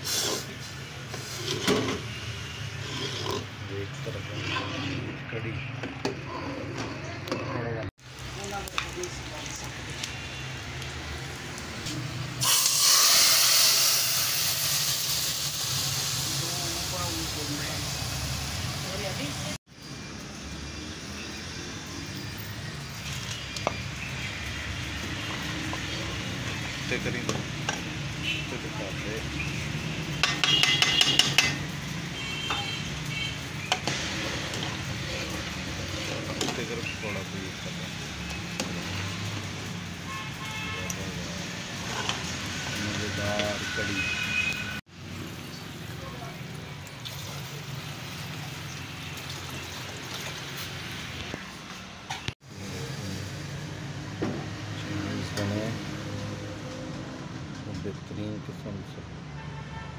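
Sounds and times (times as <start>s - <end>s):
hot oil sizzling in a pot: 0.0s - 3.7s, 8.0s - 51.5s, 52.4s - 56.6s.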